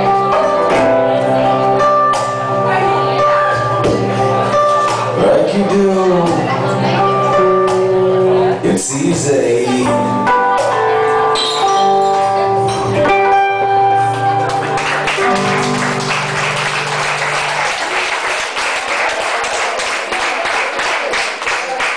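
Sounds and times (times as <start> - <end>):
acoustic guitars playing chords: 0.0 - 18.0
audience applause: 14.4 - 21.9.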